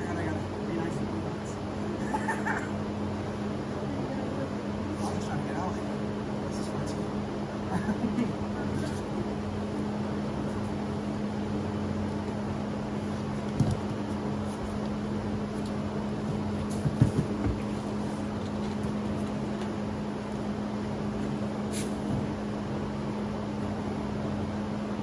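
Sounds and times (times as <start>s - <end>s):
machine hum: 0.0s - 25.0s
dull thumps: 16.3s - 17.7s.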